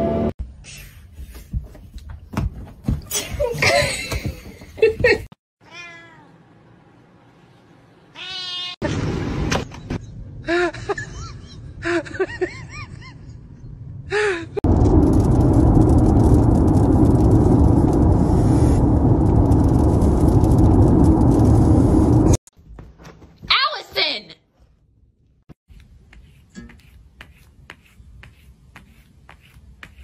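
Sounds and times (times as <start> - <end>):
cats meowing: 5.6 - 6.3, 8.2 - 8.8.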